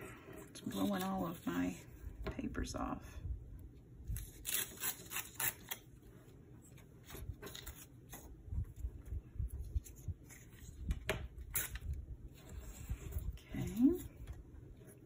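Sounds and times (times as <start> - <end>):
paper ripping along ruler: 4.2 - 5.8
paper rustling: 6.6 - 9.0.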